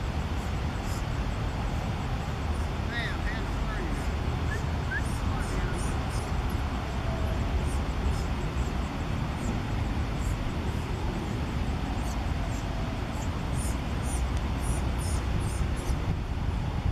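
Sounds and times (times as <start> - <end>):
distant road traffic rumble: 0.0 - 16.9.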